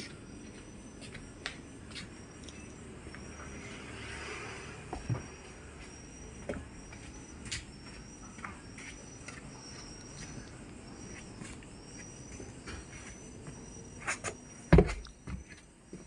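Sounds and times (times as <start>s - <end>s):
insect chirping in high trills: 0.0s - 16.0s.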